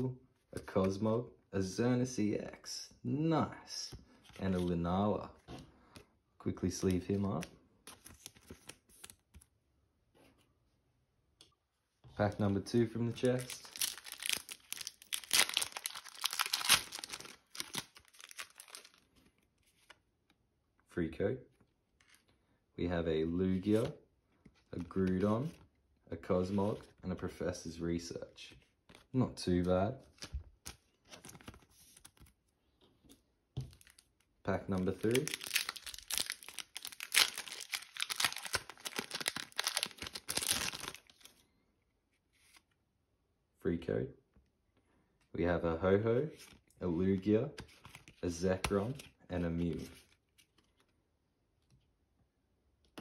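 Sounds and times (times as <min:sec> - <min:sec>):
cards rustling: 0:06.7 - 0:09.5, 0:12.2 - 0:20.0, 0:30.0 - 0:41.4, 0:47.5 - 0:51.0
foil wrapper crinkling and tearing: 0:13.4 - 0:19.0, 0:35.0 - 0:41.3.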